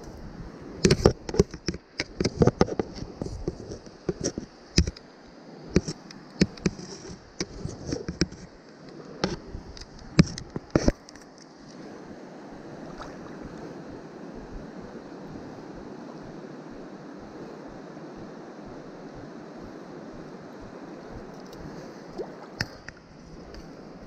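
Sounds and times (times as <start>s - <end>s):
river flowing: 11.8s - 14.0s, 21.2s - 24.0s.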